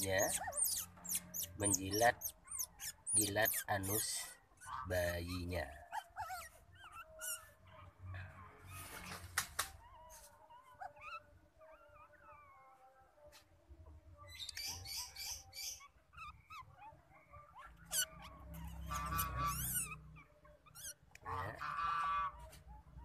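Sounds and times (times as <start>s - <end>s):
otter squealing call: 0.0s - 7.6s, 14.3s - 22.4s
otters squeaking and chirping: 0.0s - 12.9s, 14.2s - 23.0s.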